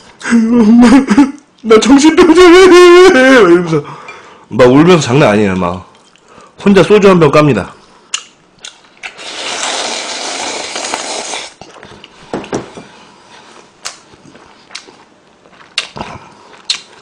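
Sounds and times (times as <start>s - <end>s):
person slurping broth: 9.0s - 11.6s
chewing: 13.8s - 17.0s.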